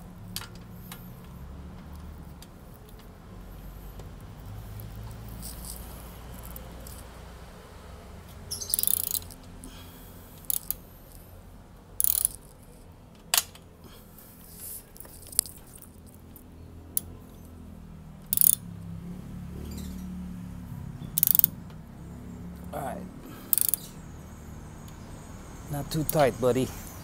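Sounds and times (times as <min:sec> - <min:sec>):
hand tool metallic clicking: 0:08.6 - 0:09.4, 0:10.4 - 0:10.8, 0:12.0 - 0:12.5, 0:18.3 - 0:18.6, 0:21.2 - 0:21.5, 0:23.5 - 0:23.9.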